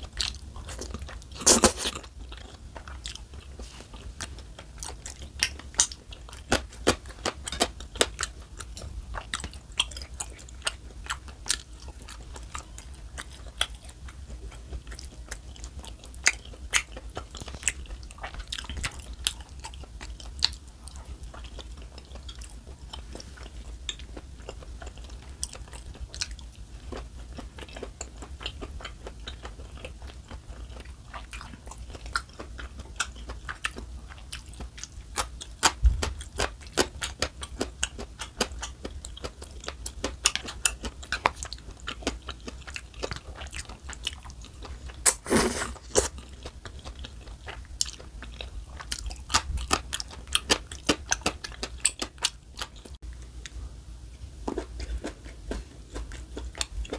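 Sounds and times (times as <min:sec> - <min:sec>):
wet chewing: 0:00.1 - 0:53.6, 0:54.5 - 0:56.9
crunchy bites: 0:00.6 - 0:02.1.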